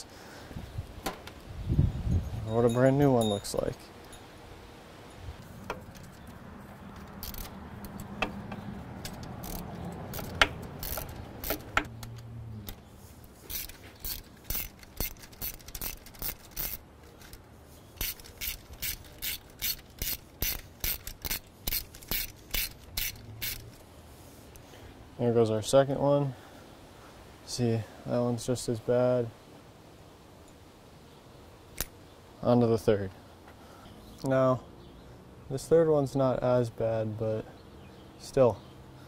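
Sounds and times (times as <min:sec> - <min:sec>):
hand ratchet clicking: 0:07.1 - 0:08.4, 0:09.0 - 0:12.2, 0:13.5 - 0:17.4, 0:18.0 - 0:23.8.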